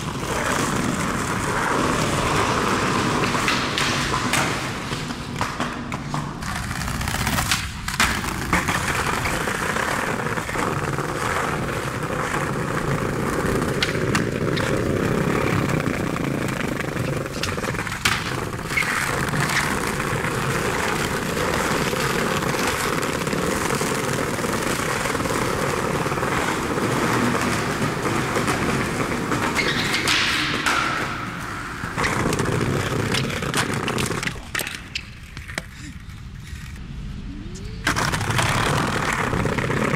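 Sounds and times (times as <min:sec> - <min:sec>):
skateboard wheels rolling over bricks: 0:00.0 - 0:37.0, 0:37.8 - 0:39.9.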